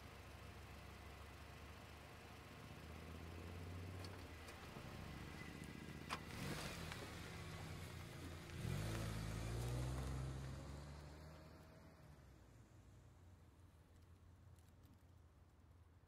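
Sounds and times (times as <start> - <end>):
car engine humming and revving: 0.2 - 13.0.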